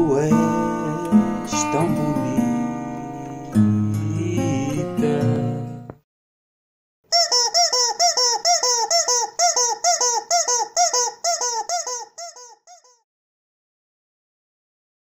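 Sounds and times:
rubber chicken toy squeaking: 7.1 - 13.0.

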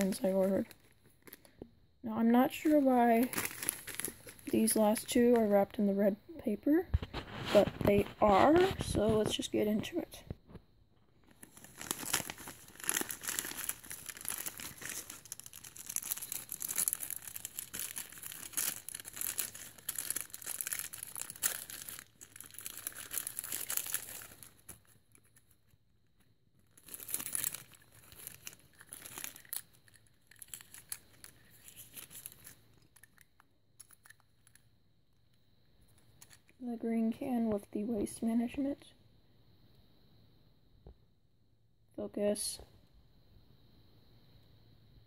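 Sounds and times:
plastic bags crinkling: 0.0 - 1.7, 2.4 - 5.7, 11.1 - 25.8, 26.6 - 34.6.

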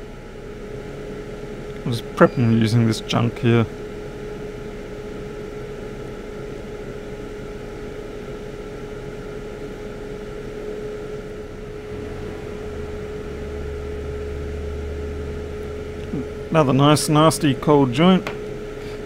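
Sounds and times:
constant tone: 0.0 - 18.7
mechanical hum of equipment: 0.0 - 19.0
low rumble: 10.6 - 16.6.

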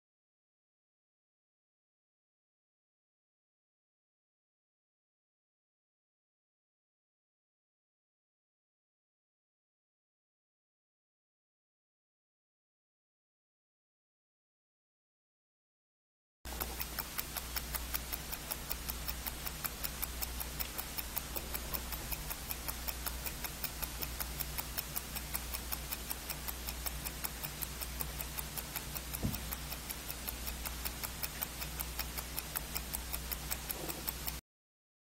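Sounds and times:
low steady hum: 16.5 - 34.4
watch ticking fast: 16.5 - 34.4.

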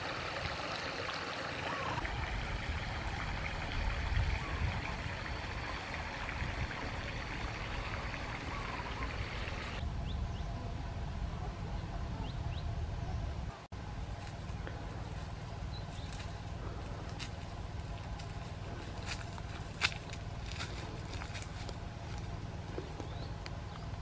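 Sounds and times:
stream rushing: 0.0 - 9.8.

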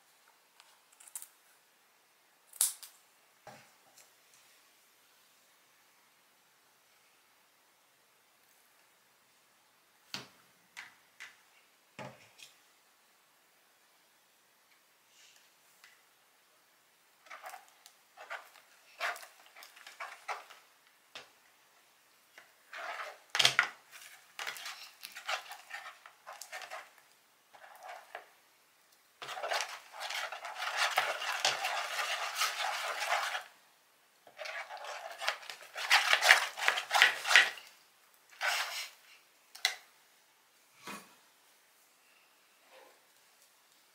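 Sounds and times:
utensil scraping in a bowl: 17.3 - 20.6, 22.7 - 28.3, 29.2 - 33.6, 34.3 - 37.7, 38.4 - 39.0.

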